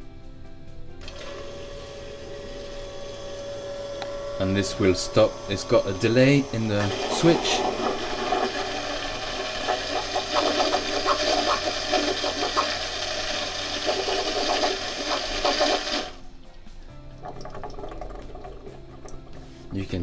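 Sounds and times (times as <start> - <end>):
bilge pump running: 1.0 - 16.2.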